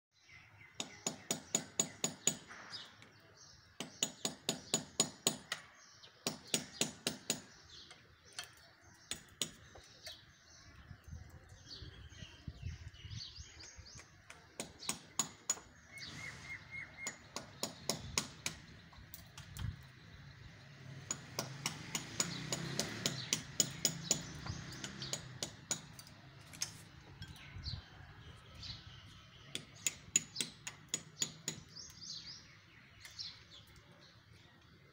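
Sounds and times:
hammer striking masonry wall: 0.7 - 9.9, 14.2 - 15.8, 17.0 - 19.7, 21.0 - 26.8, 29.4 - 31.9.

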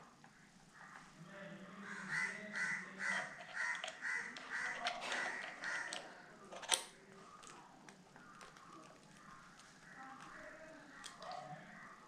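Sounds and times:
crow cawing: 1.8 - 6.2, 9.2 - 12.0.

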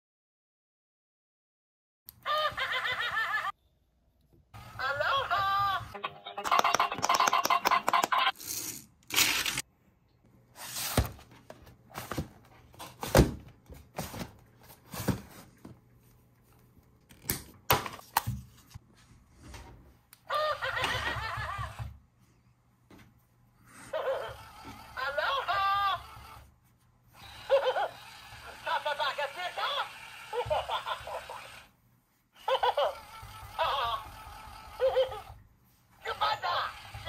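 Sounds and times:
electronic toy voice: 4.7 - 8.2, 23.9 - 26.4, 27.4 - 31.7, 32.5 - 35.4, 36.0 - 37.0
toys and packaging handled: 6.4 - 9.7, 10.5 - 15.8.

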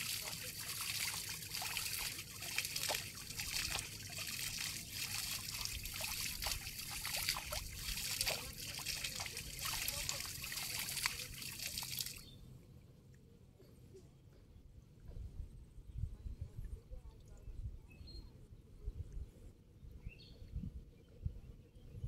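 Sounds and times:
shallow water trickling and splashing: 0.0 - 12.4.

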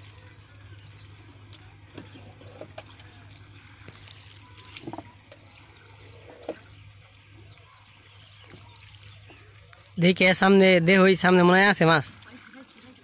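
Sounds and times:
low steady hum: 0.0 - 13.0
water lapping around boat: 0.0 - 13.0.

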